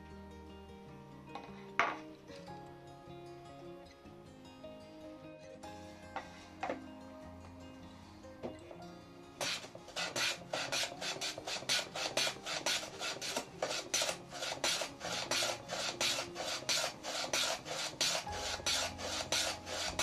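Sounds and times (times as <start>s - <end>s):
hand plane rasping on wood: 9.4s - 20.0s.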